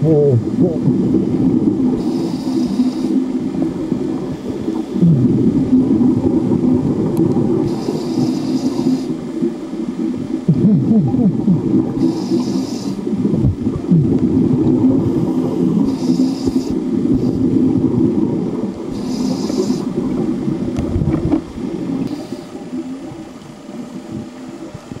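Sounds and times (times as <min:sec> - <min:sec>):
bubbling exhaust rumble: 0:00.0 - 0:25.0
regulator hissing inhalation: 0:02.0 - 0:03.3, 0:07.6 - 0:09.3, 0:12.0 - 0:13.2, 0:15.1 - 0:17.5, 0:18.9 - 0:20.0.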